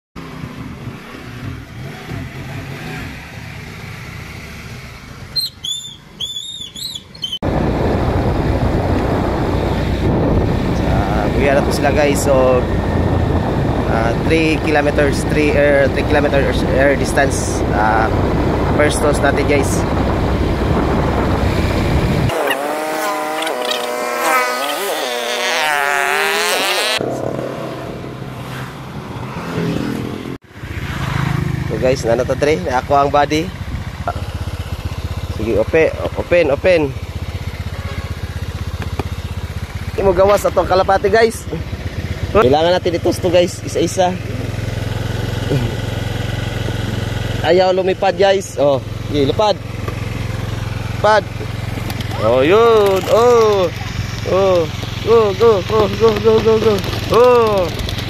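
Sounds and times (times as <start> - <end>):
scooter engine humming: 0.2 - 58.0
wind and road noise: 0.2 - 58.0
high chirps: 5.3 - 7.4
wind rushing over microphone: 7.4 - 24.5.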